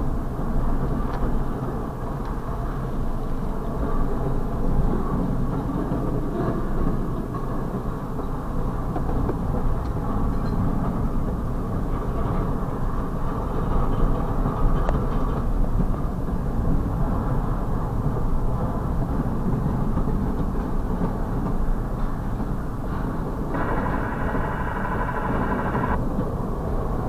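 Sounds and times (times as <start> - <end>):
freight train rumbling on rails: 0.0 - 27.0
faint clicks: 23.6 - 26.0.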